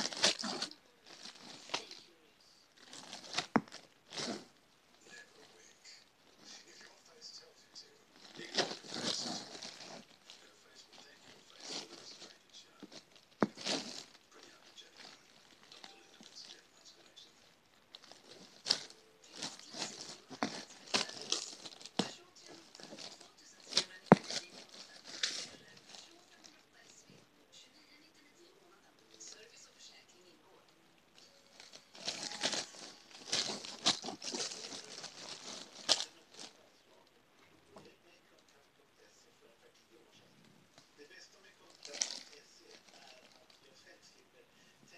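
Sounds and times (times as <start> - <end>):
plastic bag crinkling: 0.0 - 2.1, 2.8 - 6.8, 8.2 - 26.9, 31.2 - 37.0, 41.6 - 43.7.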